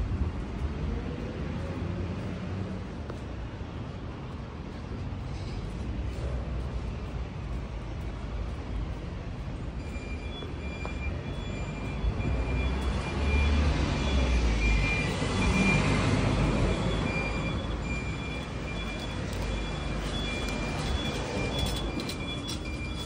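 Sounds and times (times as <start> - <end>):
street traffic rumble: 0.0 - 23.0
vehicle passing close by: 12.3 - 17.6.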